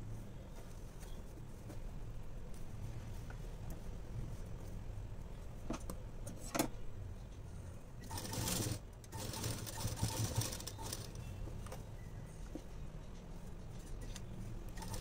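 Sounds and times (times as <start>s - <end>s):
sewing machine stitching: 8.0s - 11.2s.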